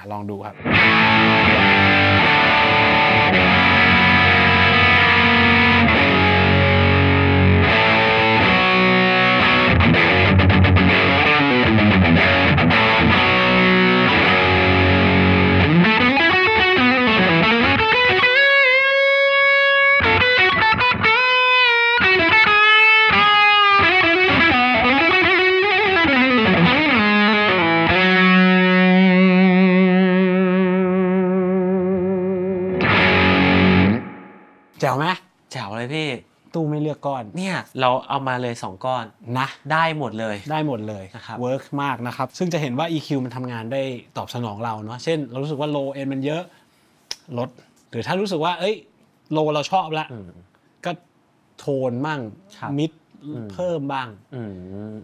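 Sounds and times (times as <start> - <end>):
distorted electric guitar: 0.5 - 34.8.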